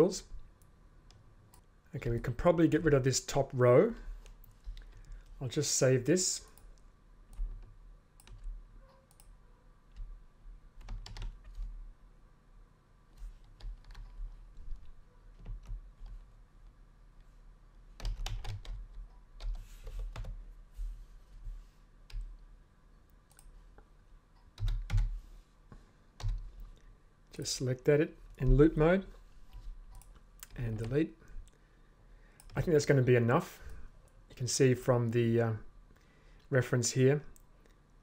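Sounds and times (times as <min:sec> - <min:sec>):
keyboard and mouse clicking: 0:06.6 - 0:10.2.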